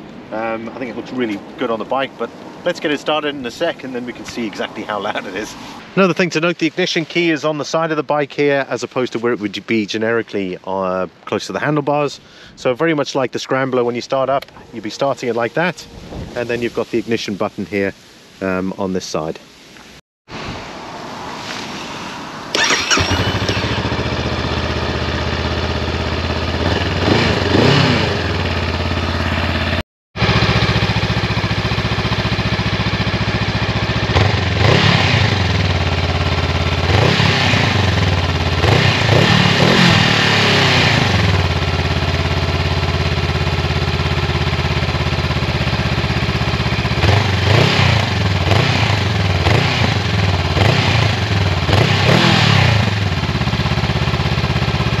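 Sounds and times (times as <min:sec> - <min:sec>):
motorcycle engine idling and revving: 0:22.5 - 0:55.0
motorcycle engine starting: 0:22.5 - 0:55.0.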